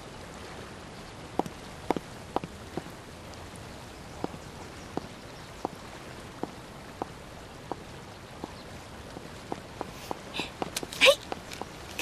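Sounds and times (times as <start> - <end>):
high heels clicking on stone: 4.2 - 4.4, 8.4 - 12.0.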